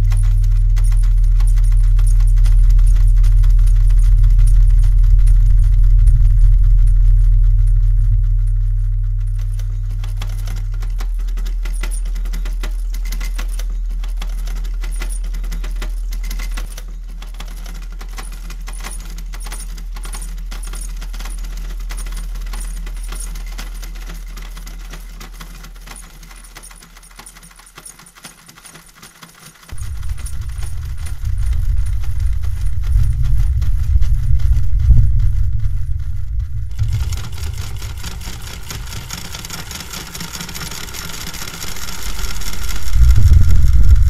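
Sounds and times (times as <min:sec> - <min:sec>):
sewing machine clicking and clattering: 0:00.0 - 0:05.5, 0:09.4 - 0:31.6, 0:36.7 - 0:43.0
loud low rumbling throb: 0:00.0 - 0:11.3, 0:29.7 - 0:44.0
low hum: 0:00.0 - 0:16.6, 0:29.7 - 0:44.0.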